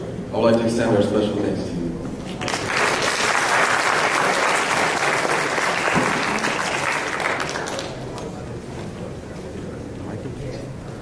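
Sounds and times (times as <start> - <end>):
audience applause: 2.3 - 8.2.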